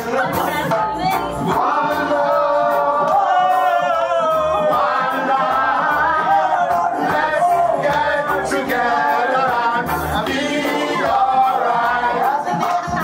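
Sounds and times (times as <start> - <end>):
bass beat: 0.0 - 13.0.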